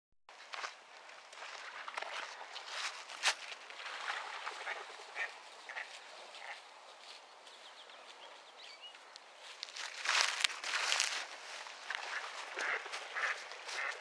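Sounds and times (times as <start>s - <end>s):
footsteps: 0.3s - 14.0s
rustling through brush: 0.4s - 14.0s
ducks quacking: 4.2s - 6.7s, 11.8s - 14.0s.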